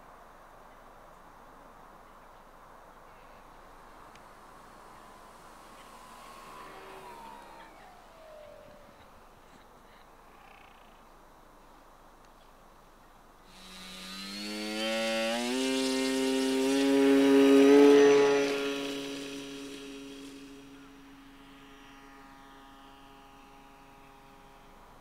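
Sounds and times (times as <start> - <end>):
model plane electric motor whine: 3.2 - 9.7, 13.5 - 25.0.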